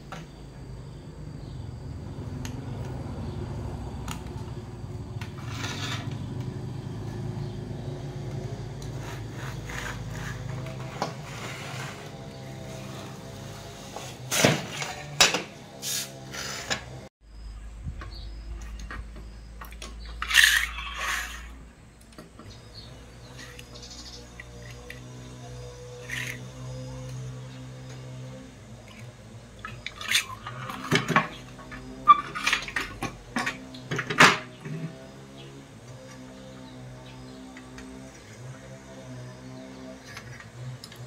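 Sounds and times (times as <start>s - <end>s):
rubbing and scraping of circuit board: 9.0s - 12.8s.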